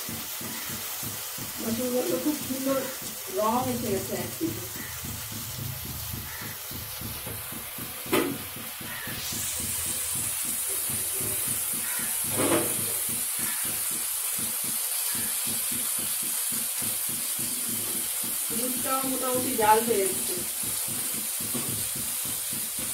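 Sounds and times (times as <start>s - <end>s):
frying sizzle: 0.0s - 22.9s
light knocks in pan: 4.7s - 9.1s, 20.9s - 22.1s.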